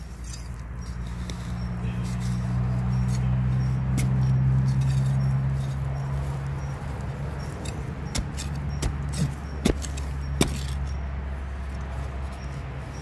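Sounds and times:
digging tool knocking into soil: 7.6s - 10.8s.

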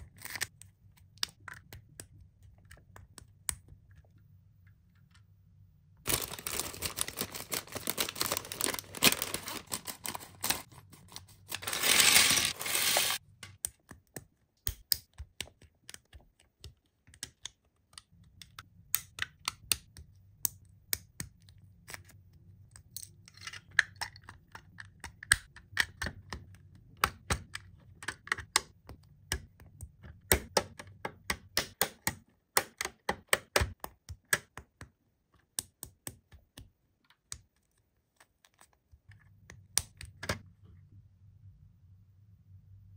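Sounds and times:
plastic packaging rustling: 6.1s - 13.2s.

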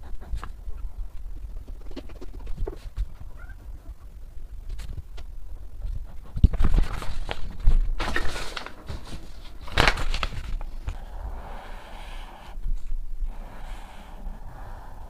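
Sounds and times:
paper rustling and sliding: 6.6s - 11.0s.

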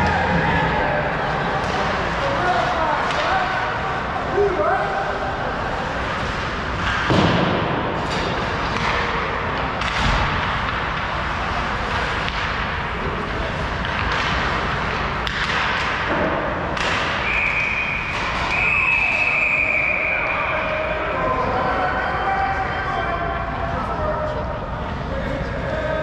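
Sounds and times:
skating and arena noise: 0.0s - 26.0s
hockey stick and puck knocks: 6.8s - 9.1s, 9.8s - 11.1s, 13.7s - 17.3s.

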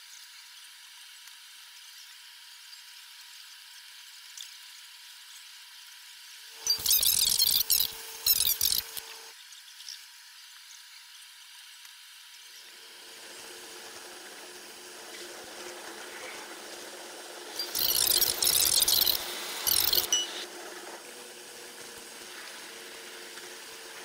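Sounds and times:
high wavering chirps: 6.6s - 9.3s, 17.6s - 20.4s
steady hiss: 12.7s - 20.5s.

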